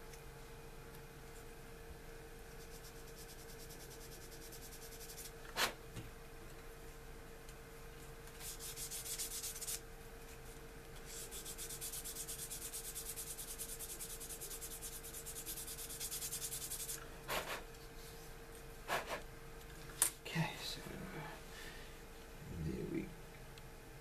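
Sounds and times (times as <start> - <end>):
sandpaper rubbing plastic: 8.4 - 9.8, 11.1 - 17.6.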